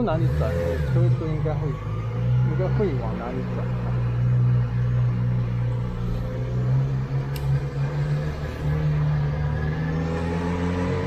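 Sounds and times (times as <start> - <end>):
motorcycle engine at low revs: 0.0 - 11.0
sharp click: 7.3 - 7.6.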